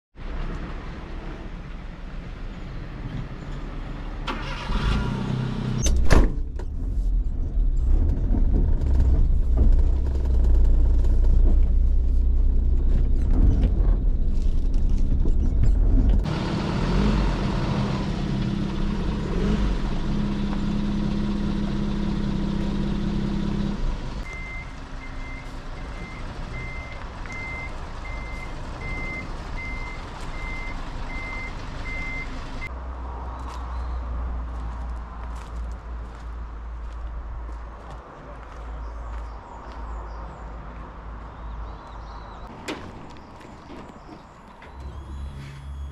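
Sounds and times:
truck engine running: 8.6 - 32.7
reversing beeper: 44.6 - 45.9.

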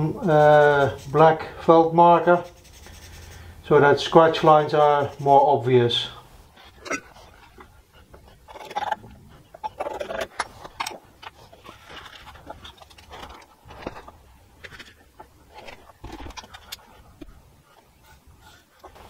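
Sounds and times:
scriber scratching steel: 0.2 - 5.6.

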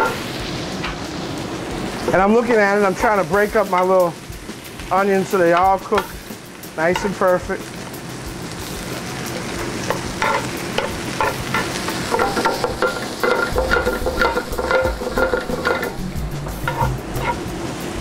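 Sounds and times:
onions sizzling in oil: 0.0 - 18.0
metal tongs clinking on pan: 6.9 - 7.2, 9.6 - 17.5.

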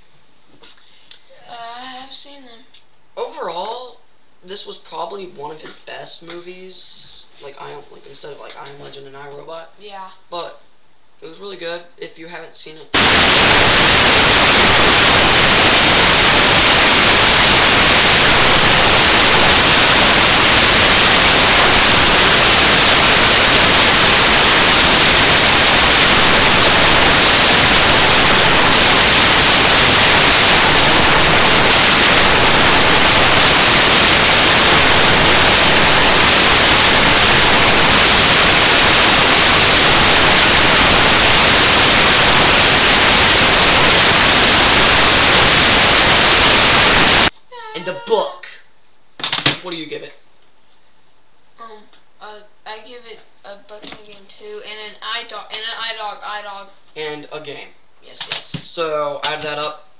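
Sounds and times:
loud static hiss: 0.0 - 59.9.

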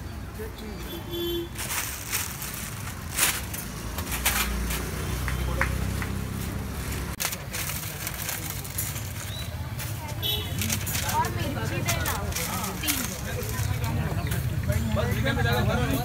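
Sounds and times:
road traffic: 0.0 - 16.0
sharp clatters and knocks: 1.6 - 6.2
murmur of voices: 5.3 - 16.0.

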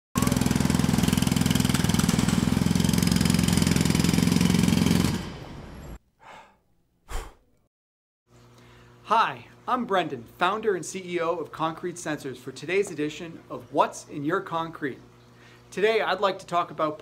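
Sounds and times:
jackhammer hammering: 0.2 - 5.9.

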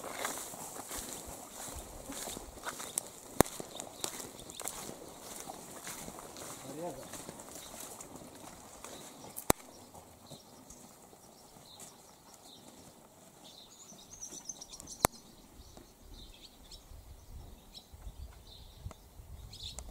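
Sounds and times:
small birds chirping: 0.0 - 19.9.

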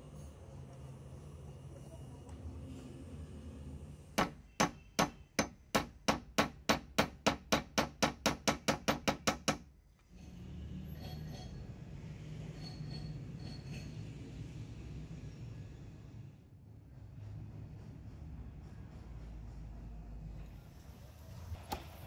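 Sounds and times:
hammer striking metal: 4.2 - 9.7.

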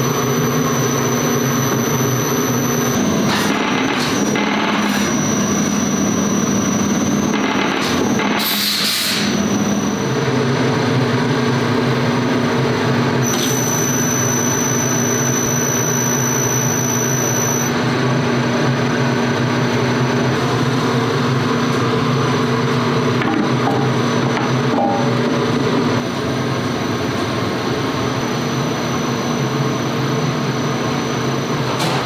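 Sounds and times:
stirrer motor hum: 0.0 - 8.4
thin high whine: 0.0 - 10.3, 13.2 - 17.8.

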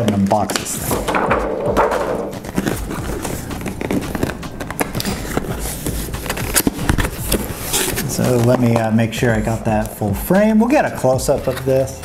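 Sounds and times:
cardboard box handling: 1.8 - 9.9.

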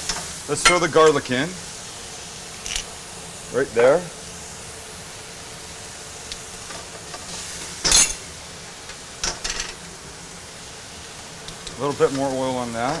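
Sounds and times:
meat sizzling in a wok: 0.0 - 13.0
metal tongs scraping a pan: 2.6 - 2.9, 6.7 - 8.2.

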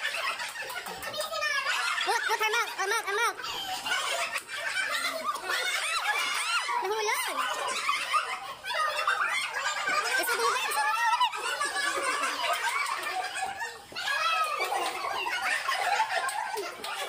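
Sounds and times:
crowd laughing: 0.0 - 17.0
excited voices: 0.0 - 17.0.

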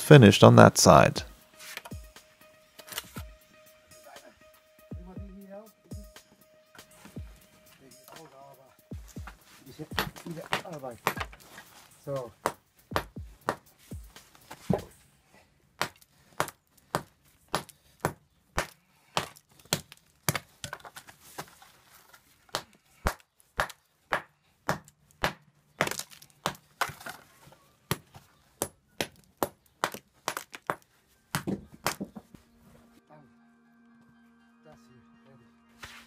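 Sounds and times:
hammer striking stone: 10.0 - 11.4.

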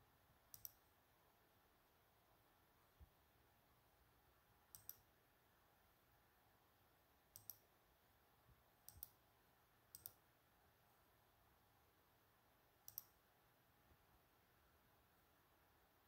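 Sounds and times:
computer mouse clicks: 0.5 - 0.8, 4.7 - 5.1, 7.3 - 7.7, 8.8 - 9.2, 9.9 - 10.2, 12.8 - 13.2.

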